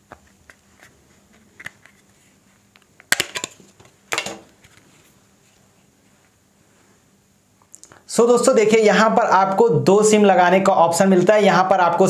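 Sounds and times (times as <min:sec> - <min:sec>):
plastic cover snapping: 0:03.0 - 0:04.5.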